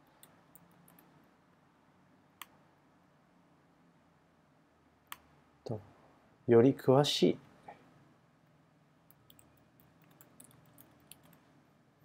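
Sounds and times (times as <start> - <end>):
computer mouse clicks: 0.0 - 1.1, 9.1 - 11.4.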